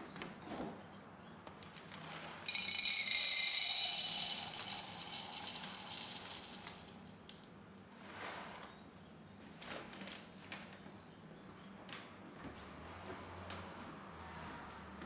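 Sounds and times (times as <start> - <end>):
coffee beans pouring into hopper: 2.4 - 7.5.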